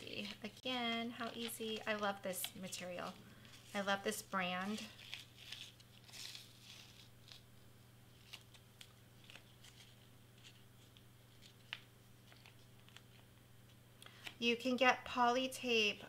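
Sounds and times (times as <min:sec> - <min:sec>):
plastic sheet crinkling: 0:00.0 - 0:07.5, 0:08.1 - 0:13.3
low steady hum: 0:00.0 - 0:16.0
small clicks of vinyl peeling: 0:08.2 - 0:14.4.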